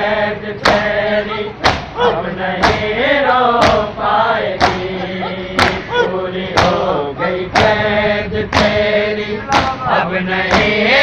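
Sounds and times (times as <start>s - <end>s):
men chanting in unison: 0.0s - 11.0s
chest beating strikes: 1.6s - 2.0s, 9.5s - 9.9s.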